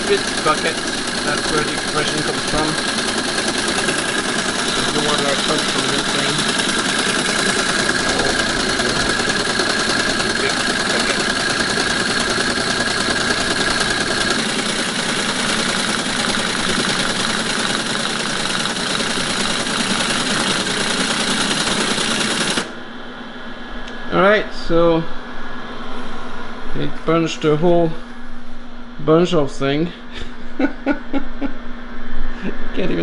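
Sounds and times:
teletype mechanical clatter: 0.0s - 22.7s.

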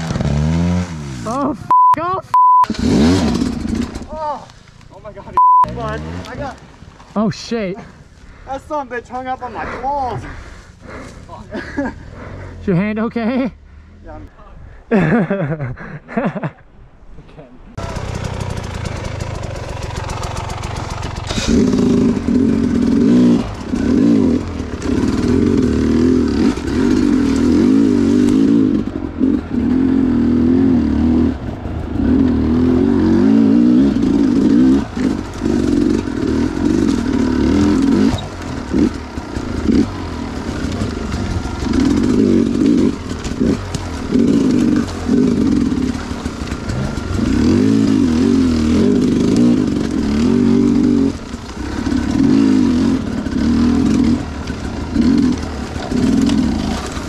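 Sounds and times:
dirt bike engine revving: 0.0s - 1.6s, 2.4s - 4.2s, 5.4s - 6.8s, 17.8s - 57.0s.

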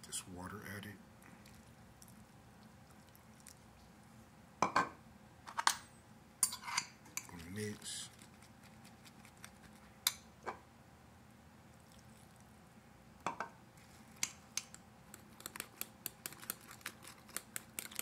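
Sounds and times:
fork clicking against glass bowl: 14.6s - 18.0s.

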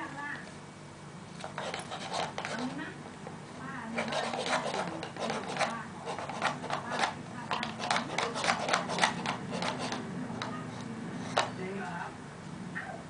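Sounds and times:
plastic spoon scraping in cup: 1.4s - 2.8s, 3.9s - 11.6s.

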